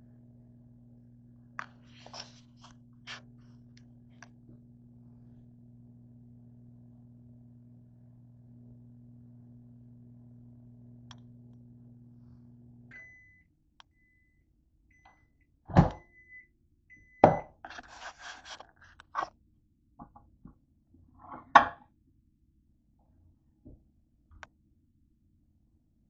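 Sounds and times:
microwave oven humming: 0.0s - 18.1s
microwave beeps: 12.9s - 17.6s.

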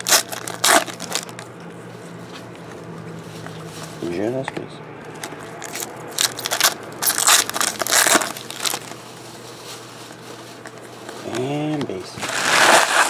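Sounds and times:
foil wrappers crinkling and tearing: 0.0s - 1.6s, 5.1s - 13.0s.

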